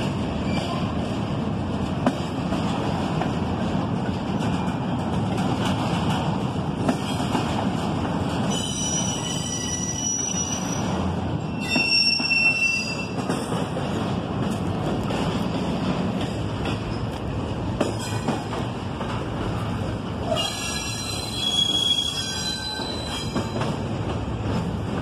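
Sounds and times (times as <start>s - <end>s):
freight train wheels rumbling: 0.0s - 25.0s
high-pitched wheel squeal: 8.5s - 13.2s, 20.3s - 23.6s.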